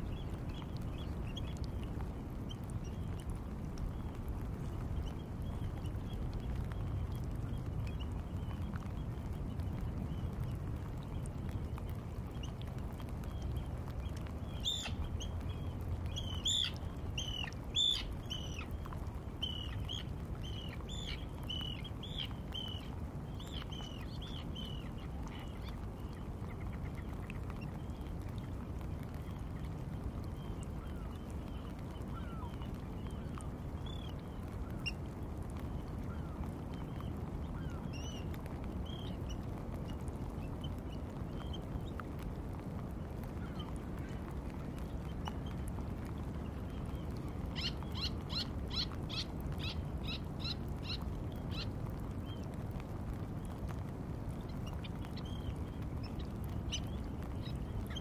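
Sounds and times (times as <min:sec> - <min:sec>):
birds calling: 0:14.4 - 0:27.3.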